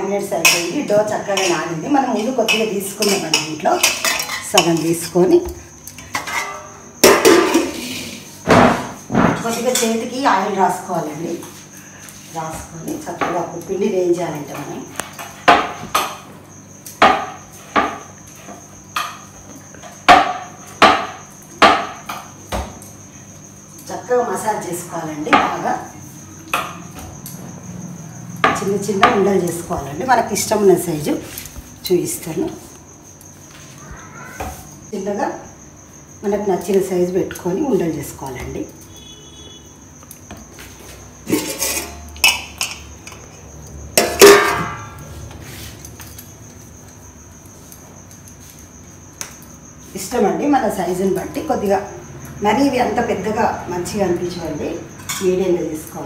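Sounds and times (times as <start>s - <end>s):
steel bowl and lid clinking: 41.2s - 43.2s, 44.0s - 45.0s.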